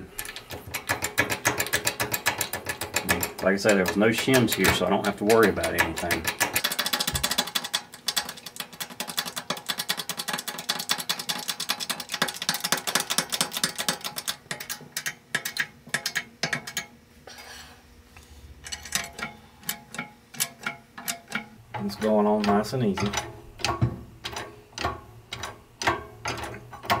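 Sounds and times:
hydraulic press clicking: 0:18.6 - 0:27.0.

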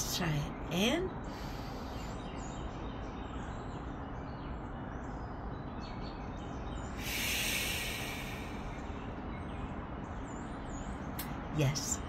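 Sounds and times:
faint bird chirps: 0:00.0 - 0:12.0
slow exhale through lips: 0:07.0 - 0:09.0.

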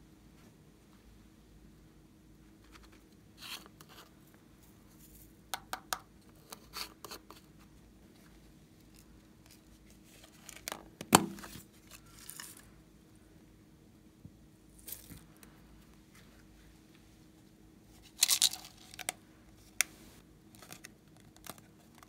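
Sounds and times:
plastic containers clicking and crackling: 0:18.2 - 0:19.2, 0:20.5 - 0:22.0.

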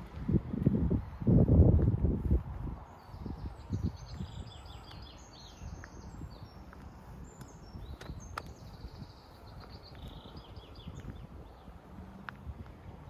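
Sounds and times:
birds chirping: 0:02.6 - 0:13.0
footsteps on gravel: 0:04.8 - 0:11.4.

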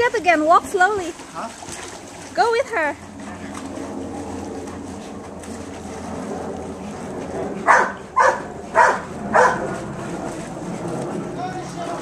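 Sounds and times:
dog barking: 0:07.7 - 0:09.6.

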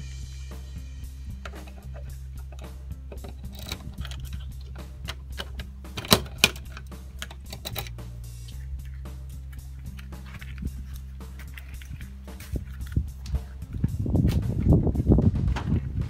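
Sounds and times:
background music: 0:00.0 - 0:16.0
keys rattling: 0:01.4 - 0:08.0
door lock clicking: 0:01.5 - 0:07.9.

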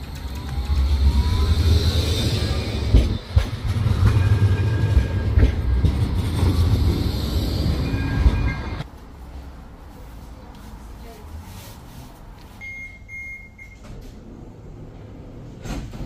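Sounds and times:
wheels clicking on track: 0:00.0 - 0:07.4
tram rumbling past: 0:00.0 - 0:12.4, 0:13.8 - 0:16.0.

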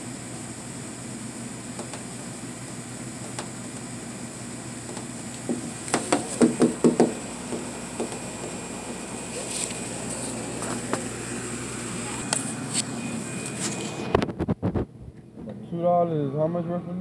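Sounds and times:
sharp knocks: 0:04.9 - 0:08.2.

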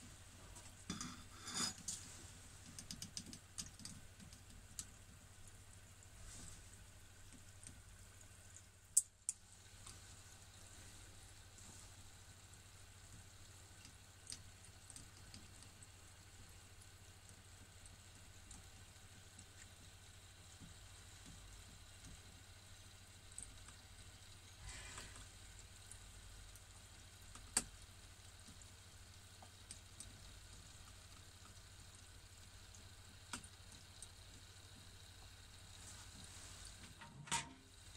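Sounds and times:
low steady hum: 0:00.0 - 0:37.9
oil sizzling and bubbling: 0:00.0 - 0:37.9
sharp pops in fryer: 0:36.8 - 0:37.7.

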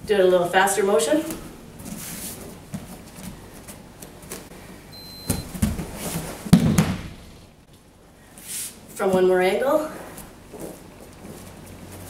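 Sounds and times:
soft thumps of feet on mats: 0:05.2 - 0:07.2
body landing with loud thud: 0:05.3 - 0:07.2.

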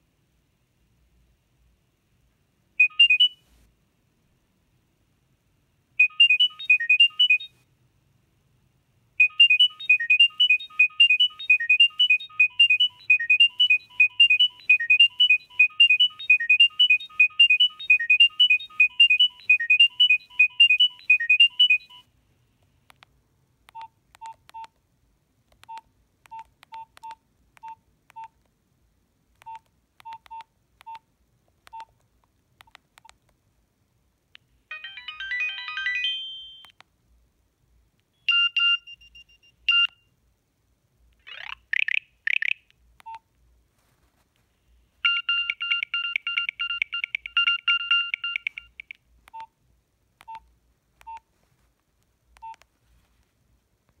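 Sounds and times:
high beeps: 0:02.8 - 0:03.4, 0:06.0 - 0:07.5, 0:09.2 - 0:22.0, 0:45.1 - 0:49.5
phone keypad beeps: 0:02.8 - 0:03.4, 0:06.0 - 0:07.5, 0:09.2 - 0:22.0, 0:23.7 - 0:24.7, 0:25.6 - 0:28.3, 0:29.4 - 0:31.0, 0:31.7 - 0:31.9, 0:34.7 - 0:36.8, 0:38.2 - 0:40.0, 0:45.0 - 0:49.5, 0:50.2 - 0:50.4, 0:51.0 - 0:51.2, 0:52.4 - 0:52.6
phone ringtone snippet: 0:09.2 - 0:22.0, 0:34.7 - 0:36.7, 0:45.0 - 0:48.9.

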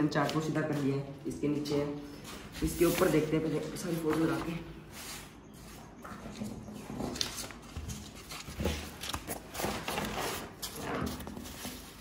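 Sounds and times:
stiff paper rustling and crackling: 0:06.3 - 0:12.0.

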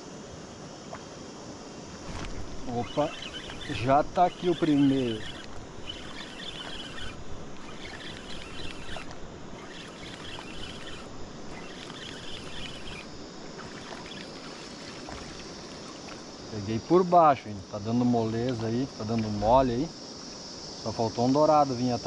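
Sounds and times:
high chirping: 0:02.6 - 0:16.1.

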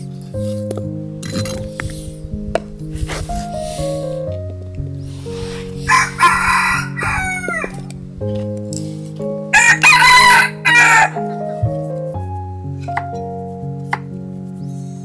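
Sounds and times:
soft background music: 0:00.0 - 0:15.0
rooster crowing: 0:05.8 - 0:07.9, 0:09.5 - 0:11.3.

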